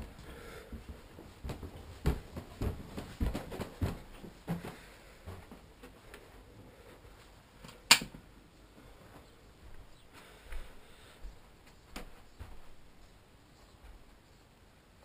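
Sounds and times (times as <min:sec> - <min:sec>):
footsteps on carpeted stairs: 0:00.0 - 0:14.2
sharp click: 0:07.9 - 0:08.1.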